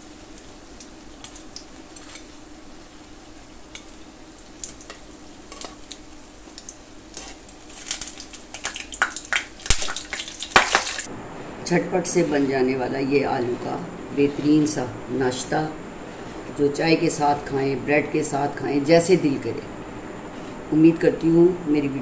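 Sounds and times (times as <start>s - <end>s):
food sizzling in oil: 0.0s - 11.1s.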